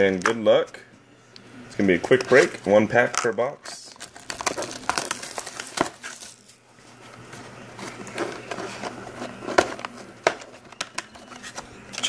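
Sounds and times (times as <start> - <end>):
plastic shrink wrap crinkling: 3.8 - 6.6.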